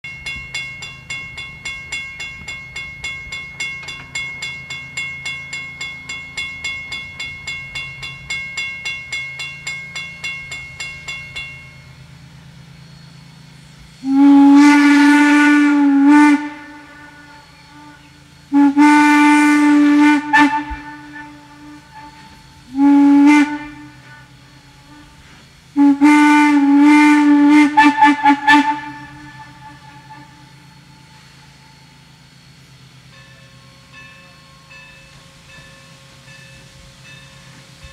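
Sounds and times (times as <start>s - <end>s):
steam locomotive exhaust chuffs: 0.0s - 37.9s
steam whistle blasts: 12.8s - 32.5s.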